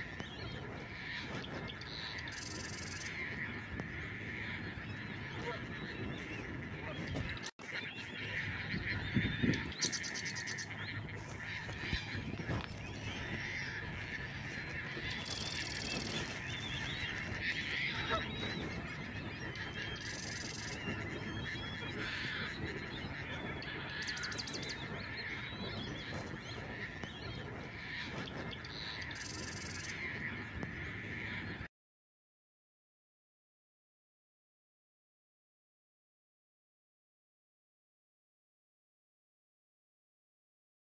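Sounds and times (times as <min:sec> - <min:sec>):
high rapid bird trills: 0:00.0 - 0:31.6
wild birds calling: 0:00.0 - 0:31.7.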